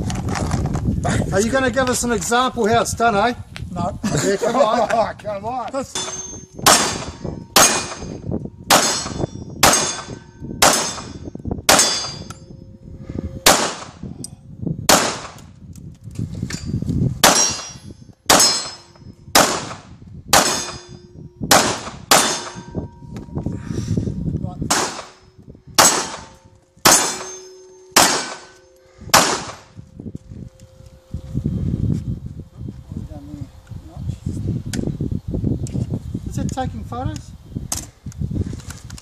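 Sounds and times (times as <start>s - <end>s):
pistol shots: 6.6s - 8.1s, 8.7s - 11.1s, 11.7s - 12.2s, 13.5s - 14.0s, 14.9s - 15.4s, 17.2s - 17.6s, 18.3s - 18.8s, 19.4s - 20.9s, 21.5s - 22.7s, 24.7s - 25.2s, 25.8s - 29.7s.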